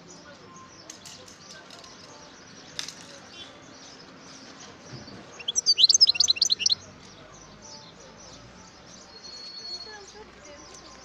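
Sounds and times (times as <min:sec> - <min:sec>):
bird twittering: 0:05.3 - 0:06.8.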